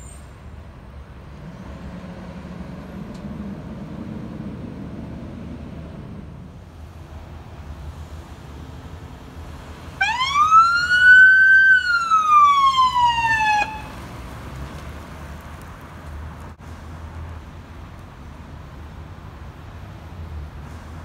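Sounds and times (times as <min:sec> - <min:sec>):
low rumble of vehicle engines: 0:00.0 - 0:21.0
ambulance siren wail: 0:10.0 - 0:14.0.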